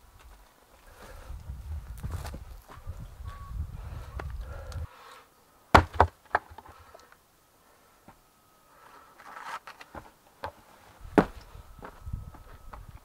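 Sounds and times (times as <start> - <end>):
log knocking on earth: 5.7 - 6.7, 9.9 - 11.9
heavy thump of person landing: 11.1 - 12.0.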